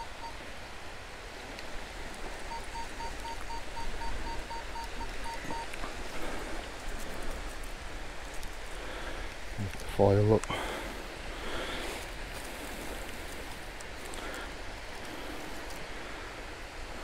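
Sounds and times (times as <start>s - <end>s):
metal detector beeping: 0.0s - 0.4s, 2.5s - 5.7s
wind: 0.0s - 17.0s.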